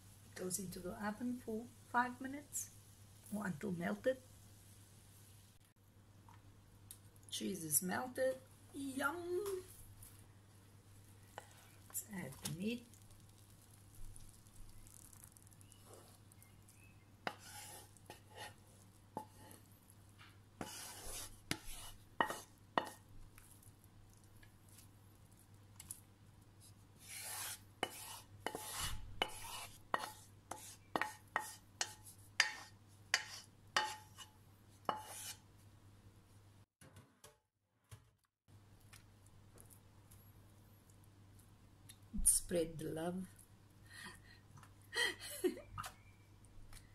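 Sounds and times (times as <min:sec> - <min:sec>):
wooden spatula scraping a pan: 0:15.7 - 0:16.3, 0:17.2 - 0:19.7, 0:20.6 - 0:23.0, 0:27.0 - 0:35.4.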